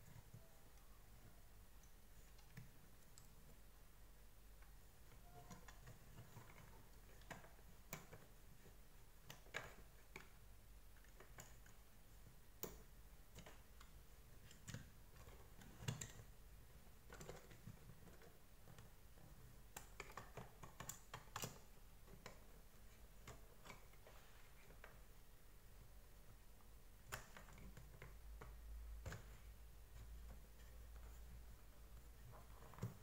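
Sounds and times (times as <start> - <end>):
plastic parts clicking and knocking: 5.0 - 25.1, 27.0 - 33.0.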